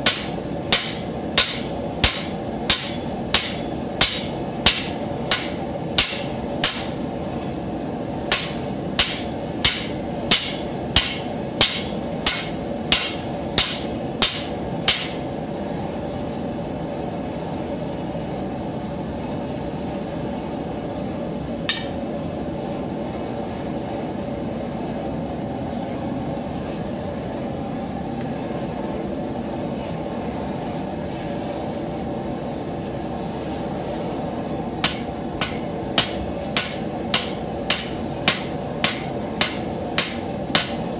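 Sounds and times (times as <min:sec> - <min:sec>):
hammer ringing on anvil: 0:00.0 - 0:06.9, 0:08.3 - 0:15.2, 0:21.7 - 0:22.0, 0:34.8 - 0:40.8
forge burner rushing: 0:00.0 - 0:40.9.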